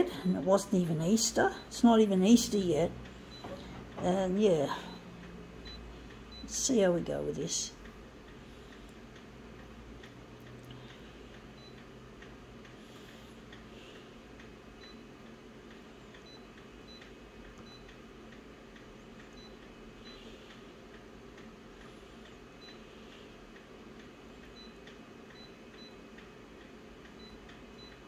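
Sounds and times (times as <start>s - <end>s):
faint regular ticking: 0.0s - 28.0s
low steady hum: 0.0s - 28.0s.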